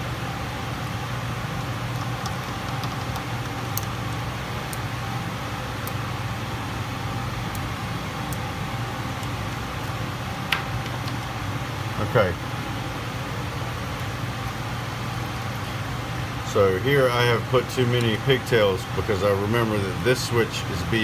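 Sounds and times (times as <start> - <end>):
mechanical hum and hiss: 0.0 - 21.0
copper wires clicking: 1.6 - 4.9, 7.4 - 8.5.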